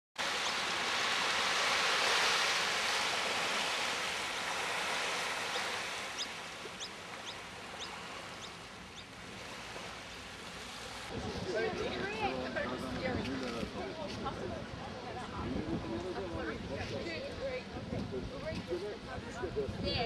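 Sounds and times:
waves rushing on shore: 0.2 - 15.2.

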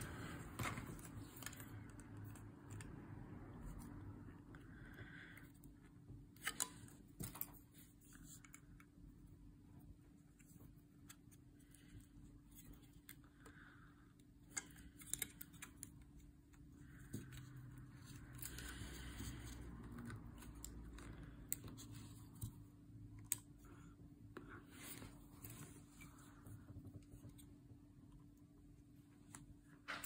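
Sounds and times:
plastic parts clicking and tapping: 14.4 - 22.6.

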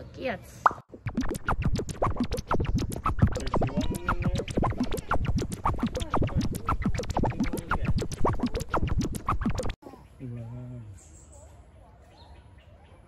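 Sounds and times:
record scratching: 0.9 - 9.8
fast beat music: 1.0 - 9.8.

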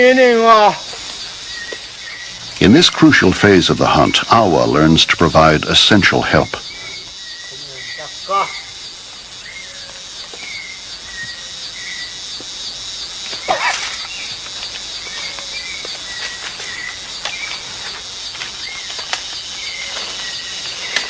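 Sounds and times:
insects chorus pulsing: 0.0 - 21.0.

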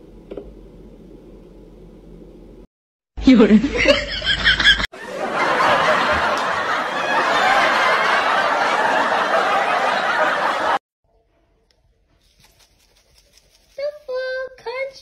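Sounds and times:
crowd laughing: 3.5 - 10.8.

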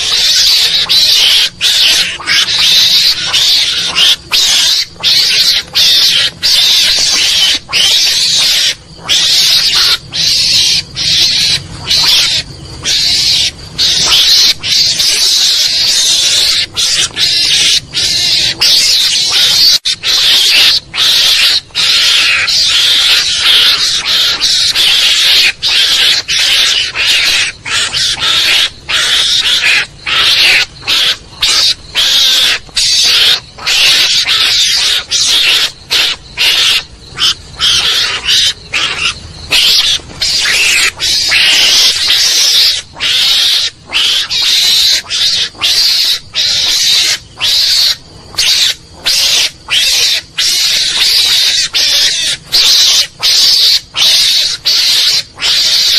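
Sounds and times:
harsh high-pitched animal calls: 0.0 - 55.9.

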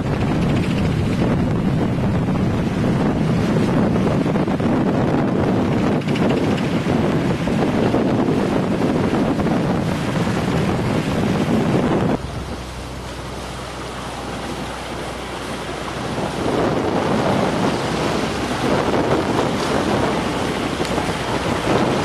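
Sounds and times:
water rushing past boat: 0.0 - 22.0
wind buffeting microphone: 0.0 - 22.0
steady low hum: 9.0 - 19.2.

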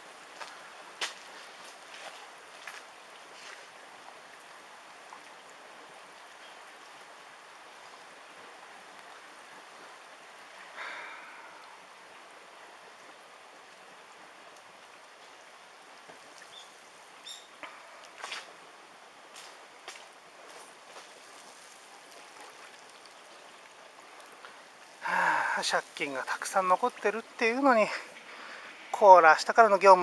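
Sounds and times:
floodwater rushing: 0.0 - 30.0.

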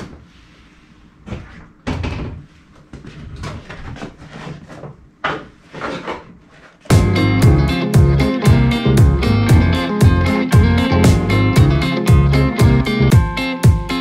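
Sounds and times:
loud guitar music with beat: 6.9 - 14.0.

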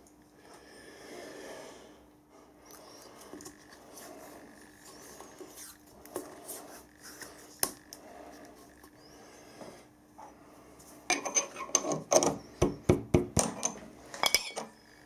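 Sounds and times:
hands handling metal parts: 13.4 - 14.7.

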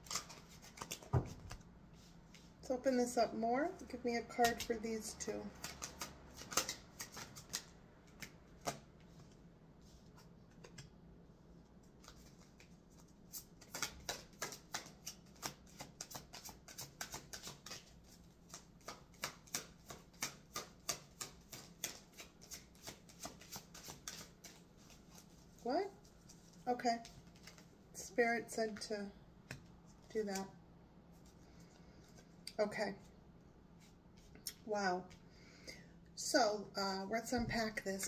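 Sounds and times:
cards being shuffled: 0.0 - 1.6, 4.4 - 4.7, 5.6 - 9.4, 10.0 - 10.9, 11.8 - 27.7.

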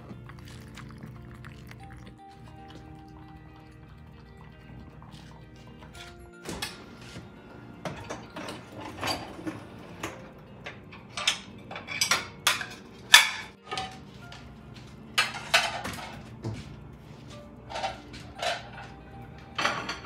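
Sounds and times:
ceramic plates clinking: 5.9 - 14.1, 15.2 - 16.6, 17.7 - 20.0.

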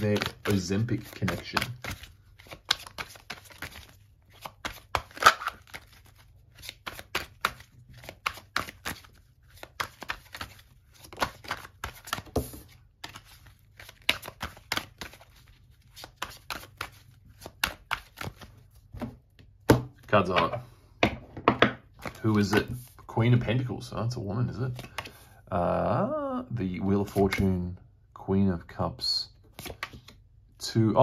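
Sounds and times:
cards being shuffled: 0.0 - 20.5, 21.9 - 23.1, 24.7 - 25.2, 27.0 - 27.5, 29.4 - 30.2.

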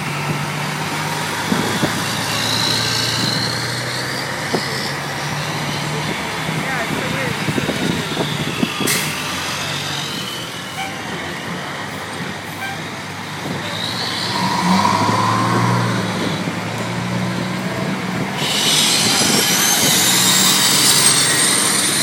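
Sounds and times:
fire engines diesel engines: 0.0 - 22.0
hiss with rising high whine: 13.9 - 16.8.

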